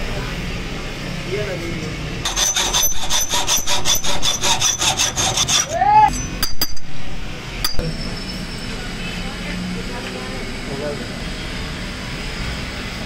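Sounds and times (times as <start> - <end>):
hacksaw cutting metal: 2.2 - 7.9.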